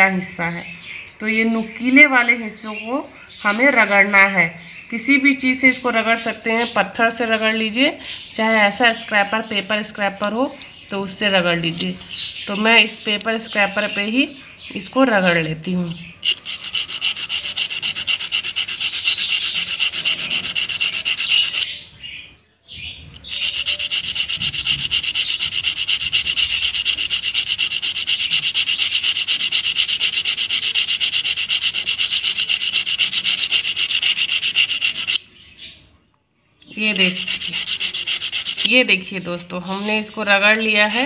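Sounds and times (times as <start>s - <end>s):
seed scratching on sandpaper: 12.1s - 13.0s, 16.2s - 21.7s, 23.2s - 35.2s, 36.8s - 38.8s, 39.8s - 41.0s.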